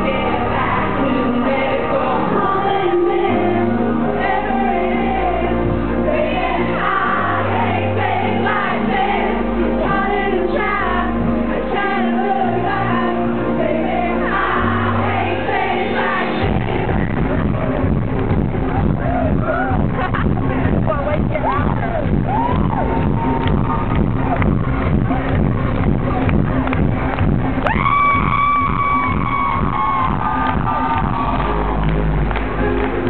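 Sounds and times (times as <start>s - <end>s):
dance beat: 16.5s - 33.0s.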